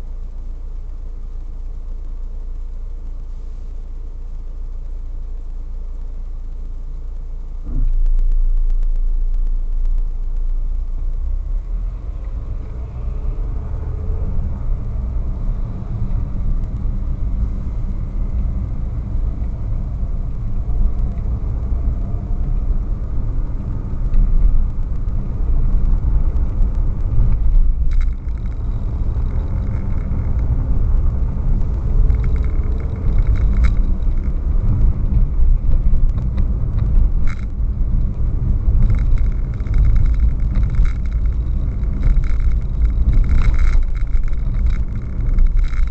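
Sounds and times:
engine and road rumble: 0.0s - 45.9s
car engine idling: 14.3s - 45.9s.

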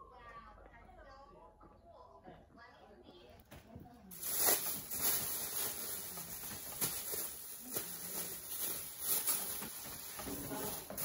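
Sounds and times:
plastic bag rustling and crinkling: 4.1s - 11.0s.

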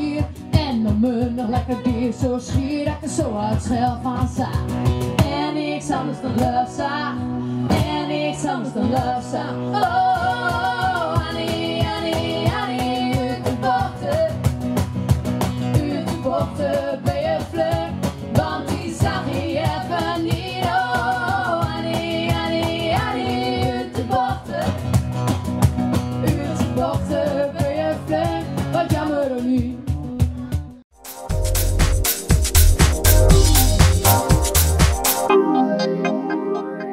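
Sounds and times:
woman singing: 0.0s - 14.4s, 15.7s - 24.9s, 26.2s - 30.1s
acoustic guitar: 0.0s - 35.3s
steady beat: 30.9s - 36.9s.

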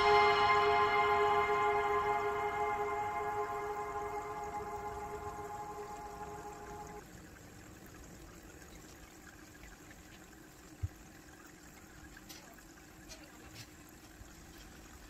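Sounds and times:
held ringing tone: 0.0s - 7.0s
faint trickling water: 0.0s - 15.0s.

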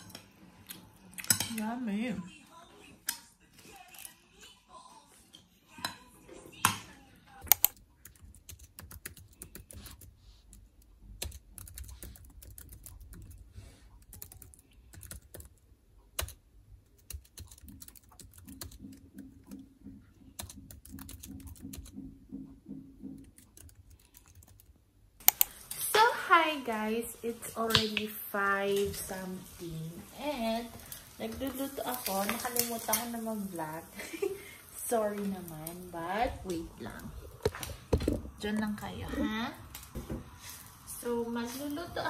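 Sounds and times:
laptop keyboard typing: 7.5s - 25.7s.

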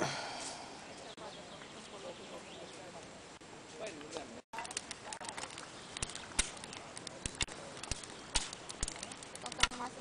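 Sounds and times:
campfire crackling and popping: 4.0s - 10.0s.

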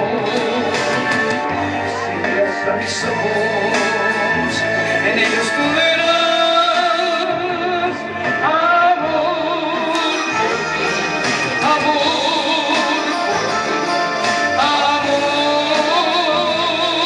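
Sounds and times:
instrumental accompaniment: 0.0s - 17.0s
man singing love song: 1.9s - 10.4s, 11.6s - 13.5s, 14.5s - 17.0s.

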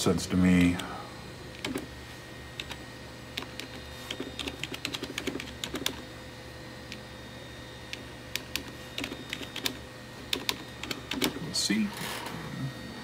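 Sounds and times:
steady low hum: 0.0s - 13.0s
keyboard keys clicking: 2.6s - 2.8s, 3.4s - 6.0s, 7.9s - 11.4s.

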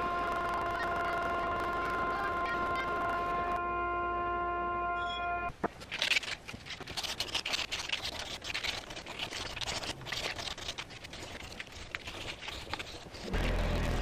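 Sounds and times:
hand sanding wood: 6.9s - 13.7s.

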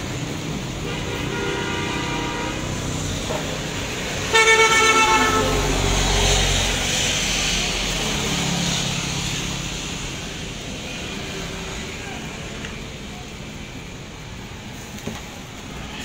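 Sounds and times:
steady traffic noise: 0.0s - 16.0s
vehicle passing on wet road: 0.0s - 16.0s
vehicle horn honking: 0.9s - 2.7s, 4.3s - 5.9s.

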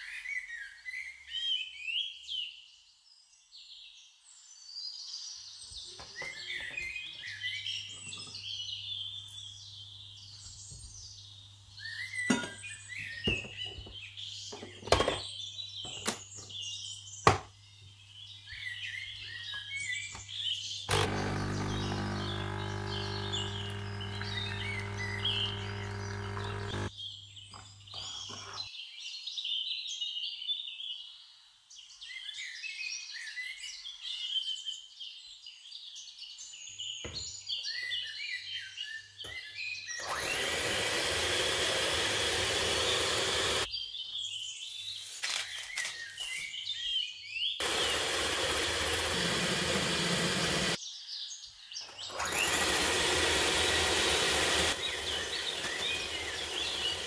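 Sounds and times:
birds chirping: 5.7s - 28.7s, 51.7s - 57.0s
hand mixer whirring: 20.9s - 26.9s, 28.0s - 28.7s, 40.0s - 43.7s, 47.6s - 50.8s, 51.9s - 57.0s.

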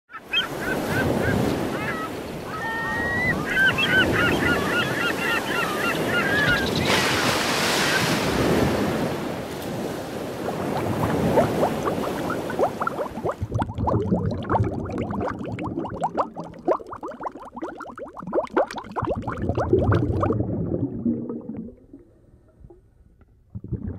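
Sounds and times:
seabirds calling: 0.1s - 8.2s
sea waves washing on shore: 0.5s - 13.6s
rising bubbles: 10.4s - 22.2s, 23.5s - 23.9s.

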